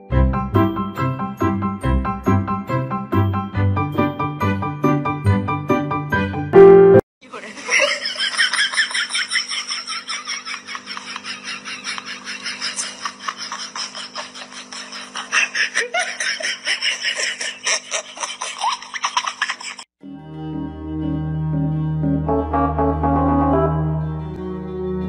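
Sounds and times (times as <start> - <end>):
person laughing: 7.3 - 19.8.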